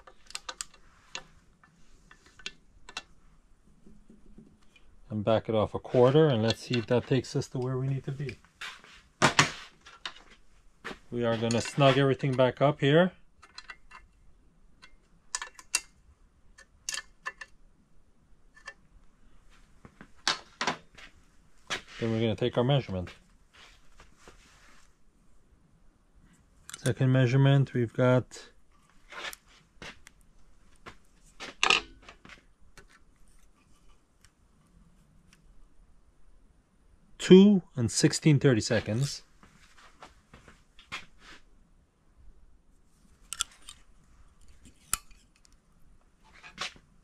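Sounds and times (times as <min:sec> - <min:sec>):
metal clatter: 0:31.6 - 0:32.1.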